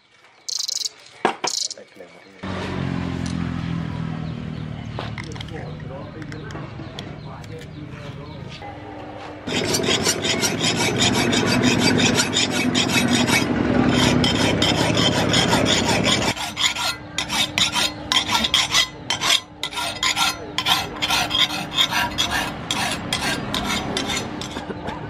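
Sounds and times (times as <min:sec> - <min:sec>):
file rasping on steel blade: 0:09.5 - 0:24.7.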